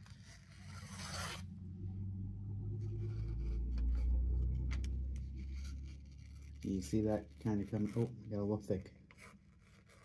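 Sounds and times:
low rumble: 1.5 - 6.6.

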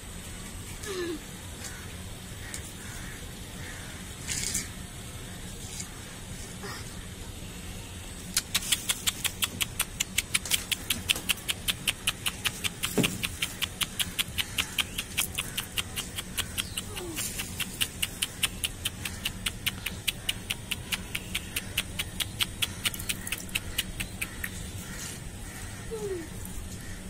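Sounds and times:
pigeons pecking on concrete: 8.2 - 27.0.

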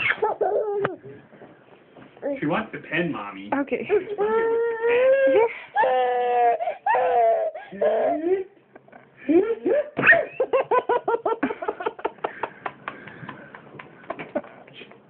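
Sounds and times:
baby fussing: 0.0 - 1.2, 4.1 - 8.4
baby squealing and giggling: 0.0 - 1.2, 4.2 - 8.3.

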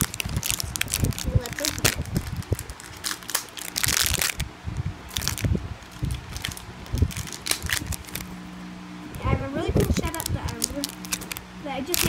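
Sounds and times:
toy packaging crinkling: 0.0 - 4.4, 5.1 - 8.3, 9.8 - 12.0.

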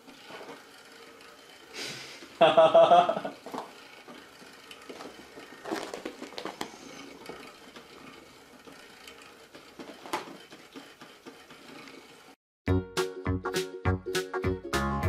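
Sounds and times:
person laughing: 1.8 - 3.4
rustling: 3.4 - 12.2.

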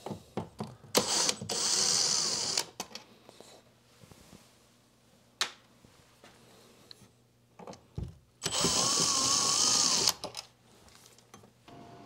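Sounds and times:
cordless drill running: 1.0 - 2.7, 8.4 - 10.2
faint handling noises: 2.8 - 8.3, 10.4 - 11.7.

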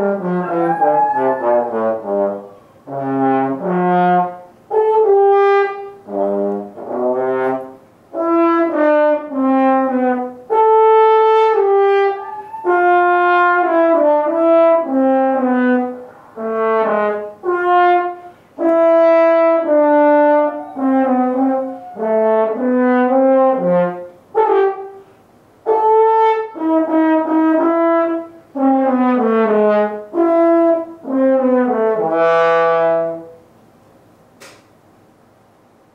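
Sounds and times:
french horn playing: 0.0 - 25.0, 25.6 - 33.4
short click: 34.4 - 34.7.

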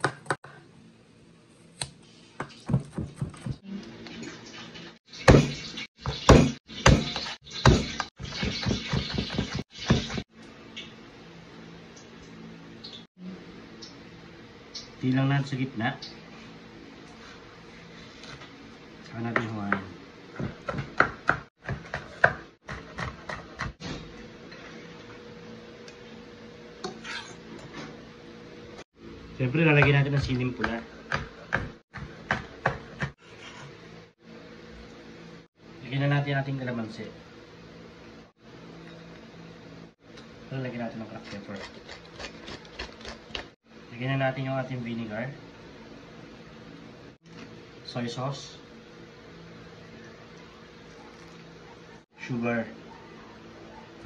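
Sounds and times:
knife chopping on cutting board: 5.3 - 10.2, 19.3 - 23.8, 29.8 - 33.1.

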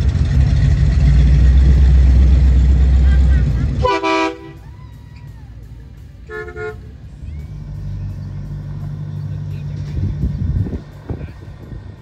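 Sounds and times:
vehicle engine running: 0.0 - 12.0
vehicle horn toot: 3.2 - 4.6, 6.3 - 6.9.

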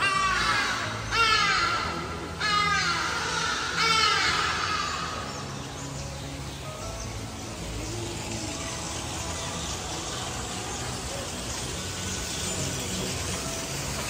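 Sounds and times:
outdoor background noise: 0.0 - 14.0
faint indistinct voices: 6.6 - 14.0.

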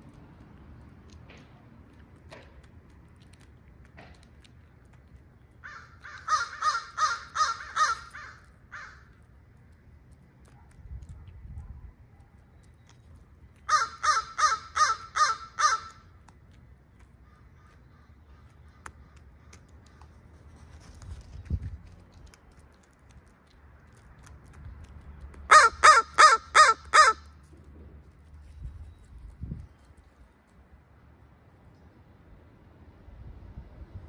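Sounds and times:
crows cawing: 5.6 - 9.2, 13.7 - 16.1, 25.5 - 27.3.

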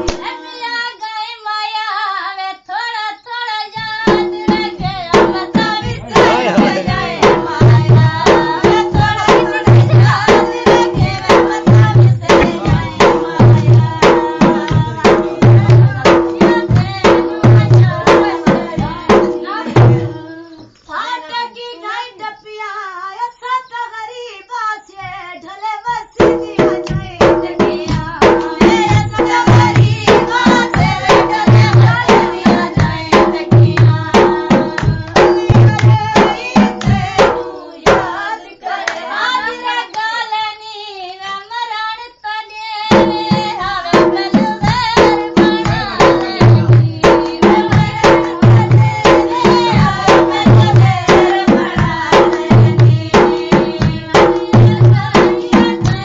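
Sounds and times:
hand clapping: 0.0 - 0.4, 34.7 - 36.0, 38.8 - 39.1
dholak drum beat: 0.0 - 1.0, 3.7 - 21.2, 25.1 - 40.1, 42.7 - 56.0
folk singing: 0.0 - 56.0.

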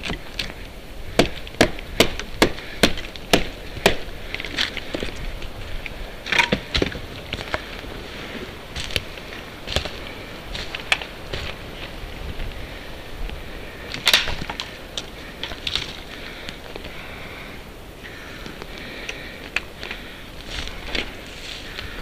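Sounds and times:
dry twigs snapping: 13.9 - 17.0.

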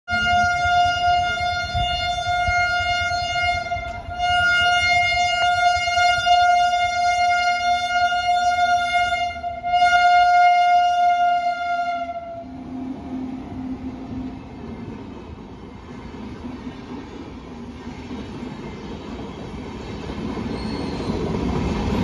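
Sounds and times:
locomotive horn blasts: 0.1 - 12.5.

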